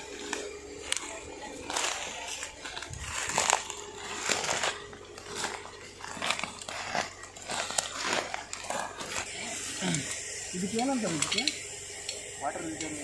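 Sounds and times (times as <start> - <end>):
branches and leaves crackling: 0.0 - 12.2.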